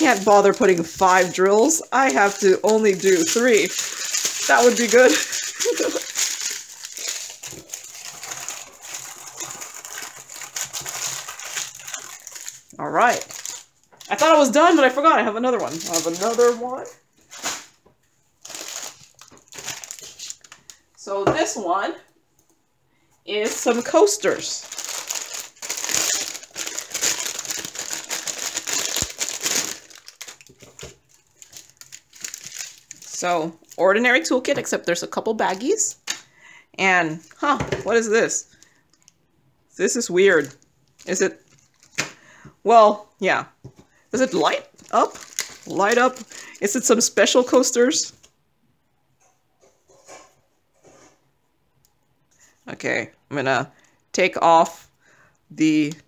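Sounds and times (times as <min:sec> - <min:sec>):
tiny beads rattling in bags: 0:00.0 - 0:14.4
plastic bags crinkling: 0:00.0 - 0:17.8, 0:18.4 - 0:20.9, 0:23.4 - 0:36.2, 0:39.9 - 0:42.3, 0:43.7 - 0:47.8.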